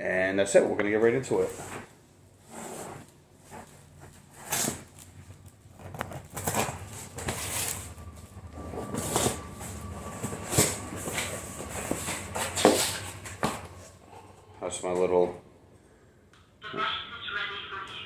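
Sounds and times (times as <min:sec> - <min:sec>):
cardboard box rustling and scraping: 0:05.9 - 0:08.0, 0:08.6 - 0:14.0.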